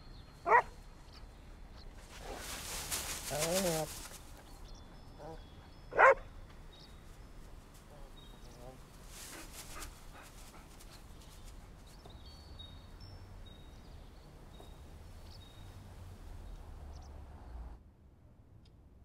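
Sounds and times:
dog rustling dry leaves: 2.0s - 4.4s, 8.9s - 10.8s.

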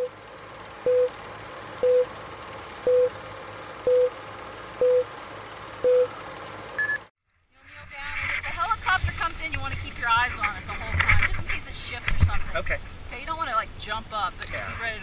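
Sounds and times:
low hum: 0.0s - 15.0s
short countdown beeps: 1.8s - 2.1s, 2.9s - 3.1s, 3.9s - 4.1s, 4.8s - 5.1s, 5.8s - 6.1s.

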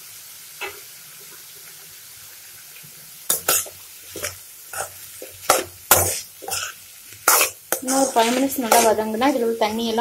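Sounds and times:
faint frying sizzle: 0.0s - 10.0s
spoon scraping metal pan: 3.3s - 9.8s.

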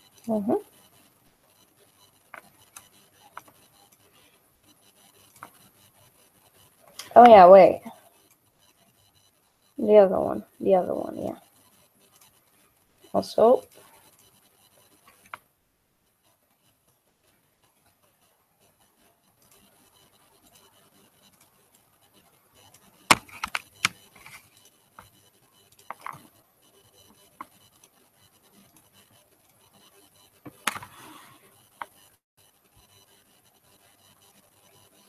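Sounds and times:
faint scratching: 16.0s - 35.0s
stylus and mouse clicks: 22.6s - 26.4s, 29.6s - 32.2s.

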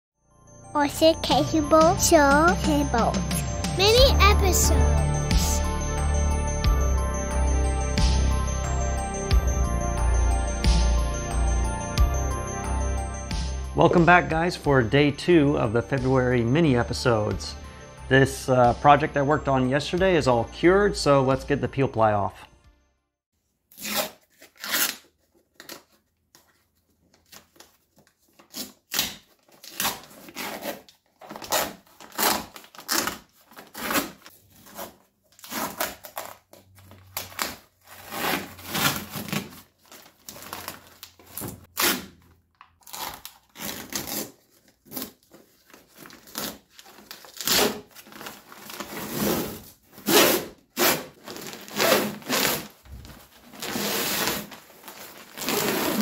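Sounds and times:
cloth tearing off fiberglass: 23.7s - 25.9s, 28.4s - 56.0s
cloth crinkling: 42.8s - 56.0s.

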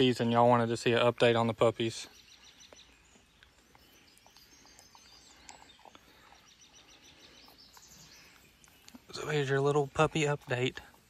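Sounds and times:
small ticks and rustles: 2.3s - 11.0s.

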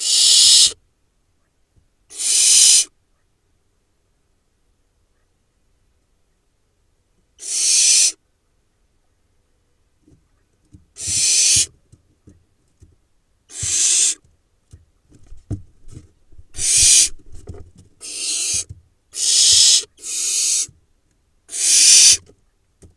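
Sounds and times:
owl chicks hissing calls: 0.0s - 0.8s, 2.1s - 2.9s, 7.4s - 8.2s, 11.0s - 11.7s, 13.5s - 14.2s, 16.5s - 17.3s, 18.0s - 20.8s, 21.5s - 22.3s
soft knocks and scrabbling: 14.2s - 18.0s, 22.2s - 22.9s.

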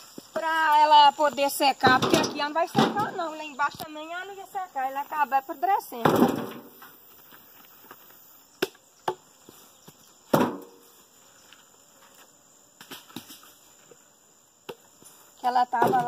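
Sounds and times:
logs knocking on woodpile: 1.8s - 3.2s, 6.0s - 6.8s, 10.3s - 10.8s, 15.7s - 16.0s.

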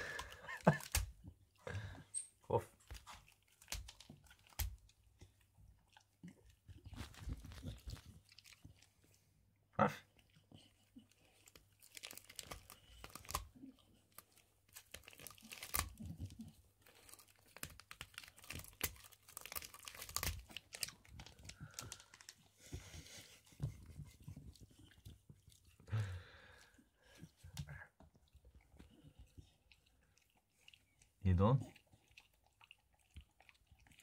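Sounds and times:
dog chewing pine cone: 2.8s - 9.1s, 10.4s - 22.4s, 27.4s - 34.0s.

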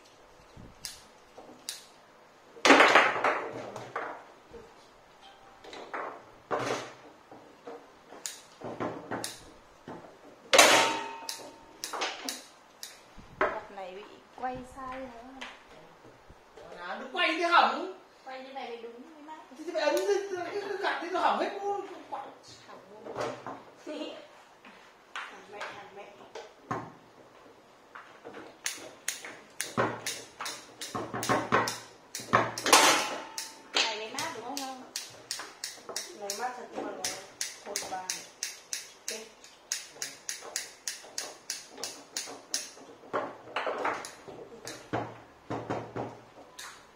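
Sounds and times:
foosball knocks and clacks: 2.6s - 4.3s, 27.9s - 34.4s, 39.8s - 46.9s.

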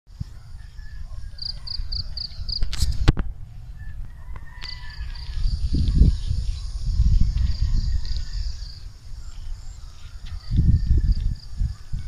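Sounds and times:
wind rumbling on microphone: 0.1s - 12.0s.

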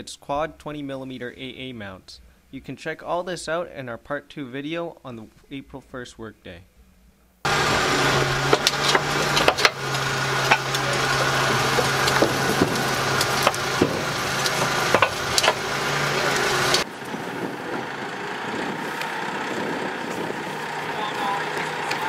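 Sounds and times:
tractor engine hum: 7.4s - 22.0s
steel tracks clanking and creaking: 7.5s - 22.0s.

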